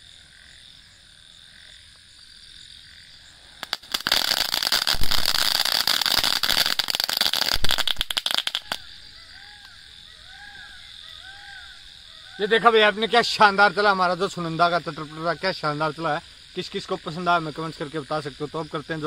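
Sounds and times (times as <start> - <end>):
firework crackling and popping: 3.6 - 8.9.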